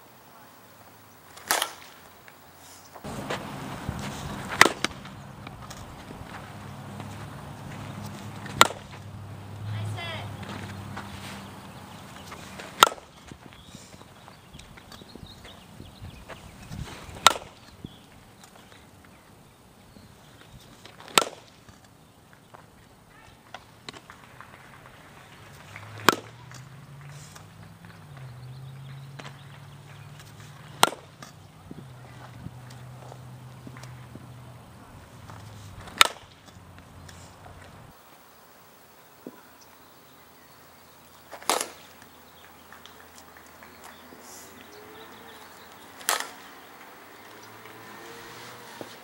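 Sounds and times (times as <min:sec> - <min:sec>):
softball bat cracking ball: 0:01.3 - 0:02.0, 0:03.0 - 0:09.3, 0:12.3 - 0:13.3, 0:17.2 - 0:17.6, 0:20.9 - 0:21.6, 0:23.8 - 0:34.3, 0:35.2 - 0:36.6, 0:41.3 - 0:48.0
bat striking ball: 0:01.4 - 0:02.0, 0:03.0 - 0:09.0, 0:12.7 - 0:13.1, 0:17.2 - 0:17.5, 0:21.1 - 0:21.4, 0:25.8 - 0:27.1, 0:30.6 - 0:31.3, 0:35.8 - 0:36.4, 0:41.3 - 0:42.0, 0:46.0 - 0:46.4.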